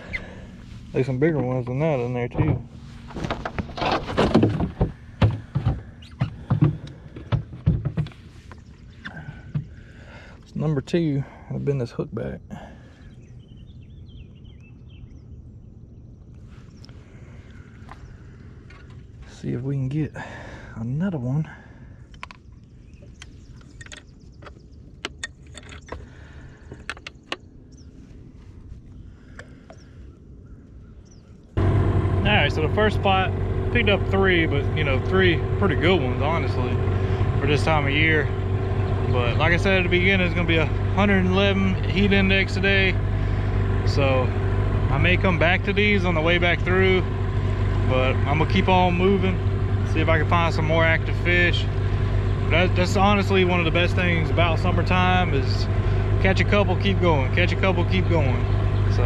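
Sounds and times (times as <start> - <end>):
low steady rumble: 0.0 - 59.0.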